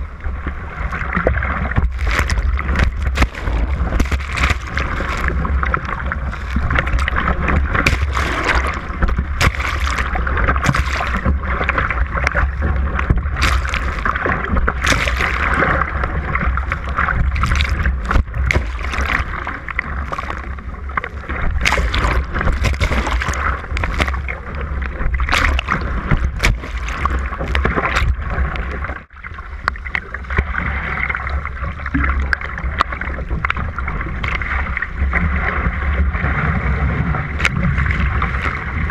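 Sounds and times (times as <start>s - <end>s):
water rushing along a hull: 0.0s - 38.9s
spray and paddle splashes: 1.2s - 28.8s.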